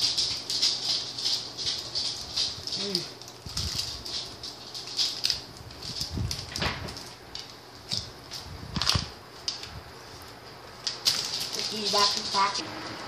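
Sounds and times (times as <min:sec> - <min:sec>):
plastic wrappers crinkling: 0:00.0 - 0:12.6.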